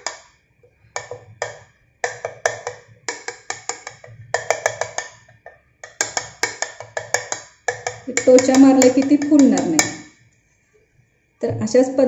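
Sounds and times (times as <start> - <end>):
knife tapping on metal plate: 0.0 - 0.3, 1.0 - 10.2.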